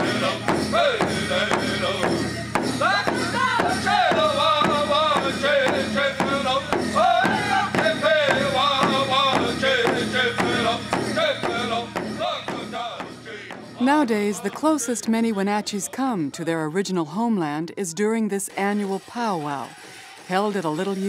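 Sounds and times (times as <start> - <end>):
steady drumbeat: 0.0 - 15.5
group singing: 0.0 - 16.3.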